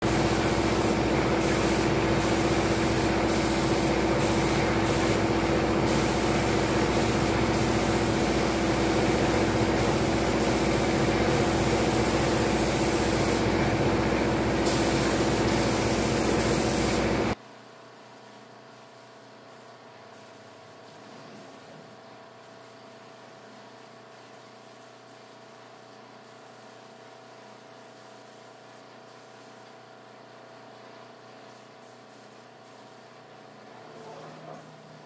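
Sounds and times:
spray gun hissing: 0.0 - 17.4.

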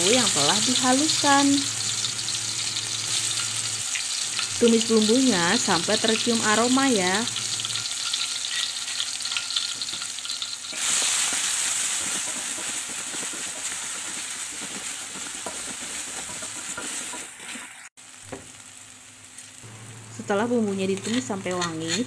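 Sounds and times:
spice paste sizzling in oil: 0.0 - 22.0
spatula scraping a wok: 7.4 - 17.9, 20.9 - 22.0.

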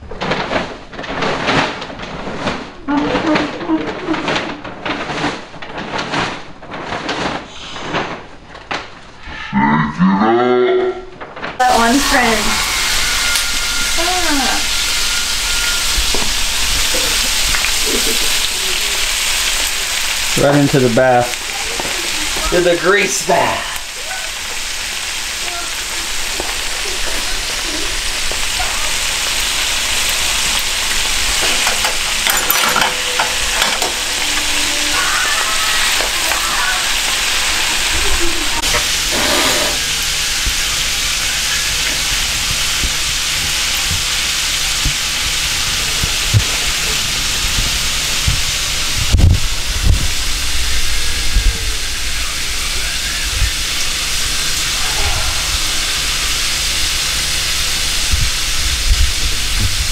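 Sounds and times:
loud sizzle of deep-frying: 11.6 - 59.9.

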